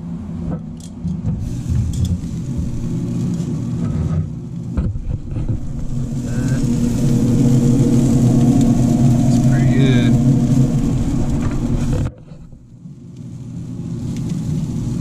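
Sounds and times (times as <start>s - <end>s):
steady low rumble: 0.0s - 15.0s
knocks and clatter: 0.5s - 6.2s.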